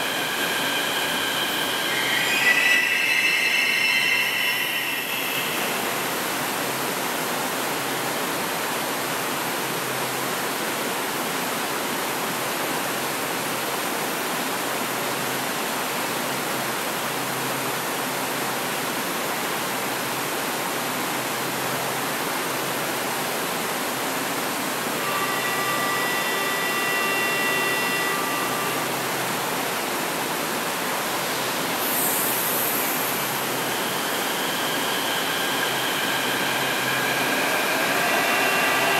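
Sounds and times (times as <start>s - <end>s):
multi-note electronic tone: 0.0s - 6.4s, 24.8s - 38.9s
brief high hiss: 31.0s - 38.9s.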